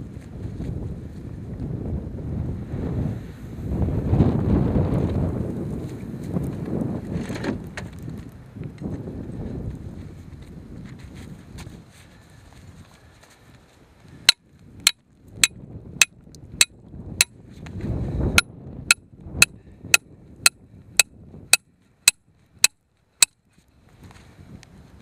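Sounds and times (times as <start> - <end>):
hammer striking metal stake: 21.0 - 23.4.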